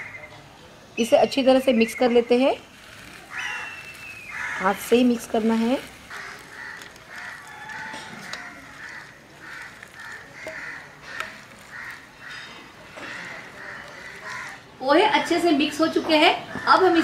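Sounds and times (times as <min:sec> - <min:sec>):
bird calling: 0:00.0 - 0:14.8
rice rustling mixed by hand: 0:02.2 - 0:14.6.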